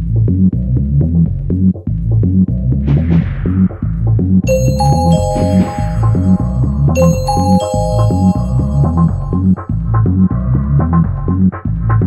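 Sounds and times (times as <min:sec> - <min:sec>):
bright bell-like chime: 0:04.5 - 0:09.7.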